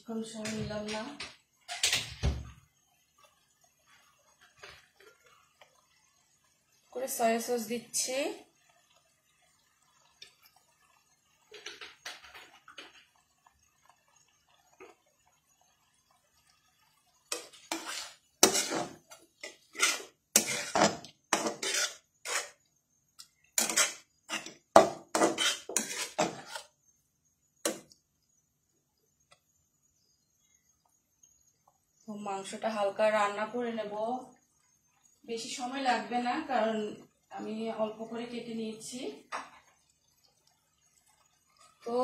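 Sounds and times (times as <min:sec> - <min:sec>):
spatula scraping metal pan: 0:17.3 - 0:22.7, 0:23.6 - 0:26.8.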